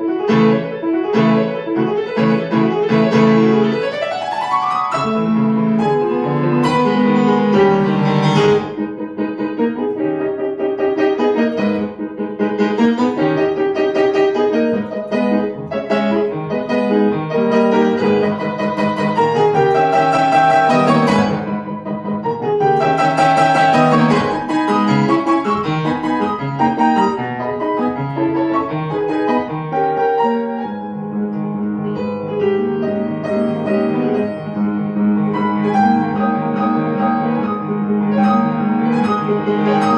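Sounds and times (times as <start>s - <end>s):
fast classical grand piano: 0.0s - 39.9s.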